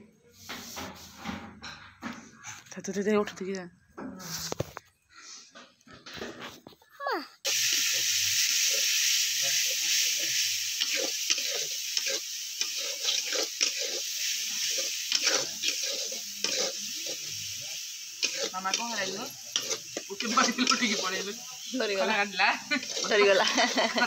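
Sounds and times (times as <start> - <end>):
food sizzling in a wok: 0.3 - 1.4, 7.4 - 24.0
metal spatula scraping a pan: 0.4 - 1.8, 10.0 - 24.0.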